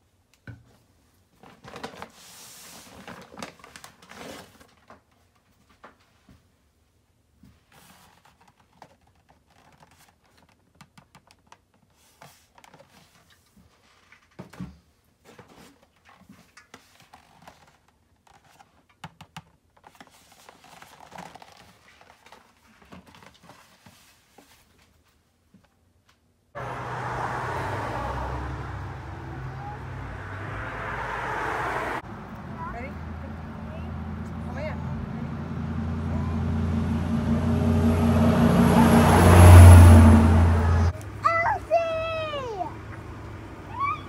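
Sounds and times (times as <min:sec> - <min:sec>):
hand handling cardboard cartons: 0:07.3 - 0:26.0
steady outdoor rush: 0:26.6 - 0:44.0.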